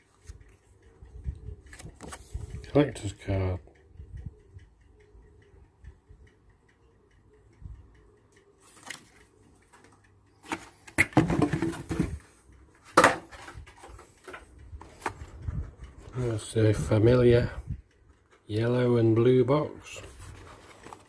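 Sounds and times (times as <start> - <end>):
cardboard rustling and scraping: 20.0 - 21.0.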